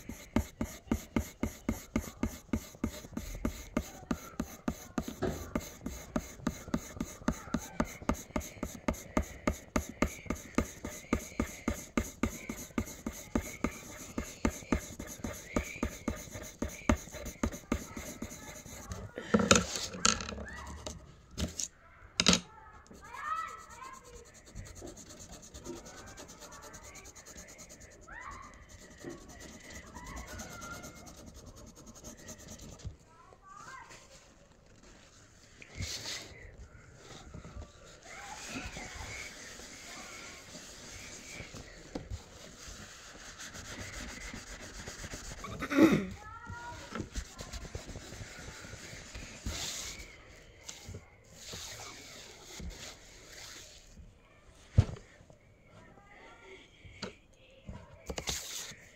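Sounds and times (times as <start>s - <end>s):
pencil scratching on paper: 0.0s - 21.6s, 22.9s - 33.0s, 38.1s - 46.2s, 46.8s - 50.1s.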